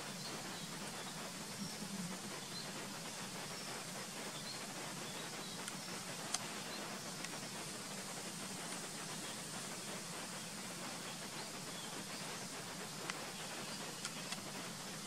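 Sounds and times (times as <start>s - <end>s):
faint low hum: 0.0s - 3.7s
steady hiss: 0.0s - 15.0s.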